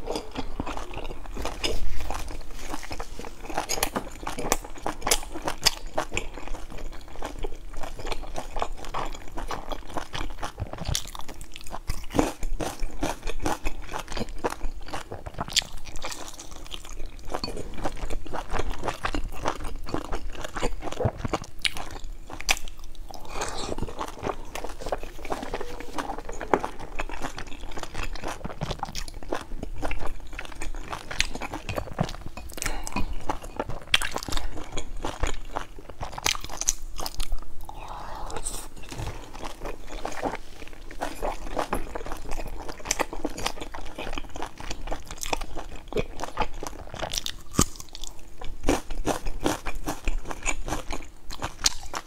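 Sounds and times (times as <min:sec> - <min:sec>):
chewing and biting buns: 0:00.0 - 0:37.5, 0:38.8 - 0:52.0.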